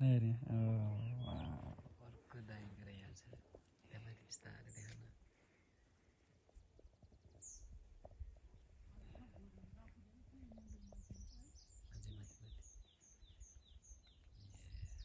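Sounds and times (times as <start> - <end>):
songbird calling: 0.8 - 1.8, 10.5 - 15.0.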